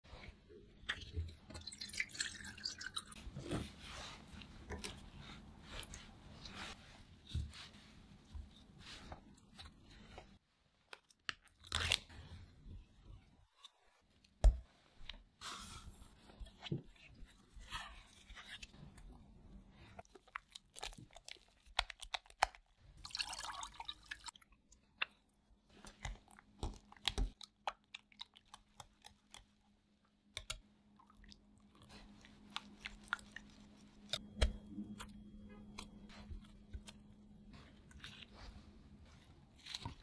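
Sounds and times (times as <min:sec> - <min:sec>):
spatula scraping and folding cream: 0:03.1 - 0:10.9, 0:11.6 - 0:23.0, 0:31.8 - 0:40.0.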